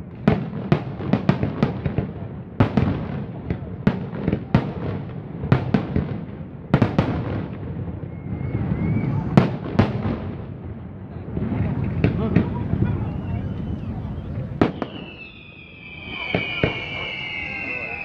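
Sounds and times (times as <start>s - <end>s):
firework shells bursting: 14.4s - 18.0s.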